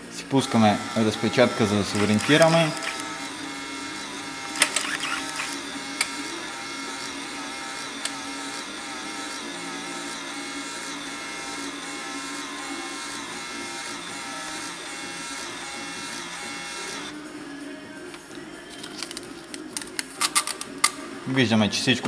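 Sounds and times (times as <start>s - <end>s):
printer paper feed whirr: 0.0s - 17.8s
printer clicks: 0.6s - 8.6s.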